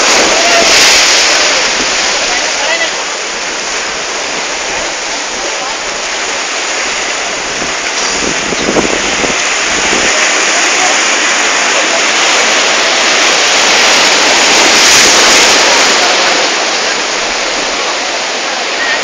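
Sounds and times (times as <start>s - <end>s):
surf breaking over rocks: 0.0s - 19.0s
wind gusts on microphone: 6.8s - 17.8s.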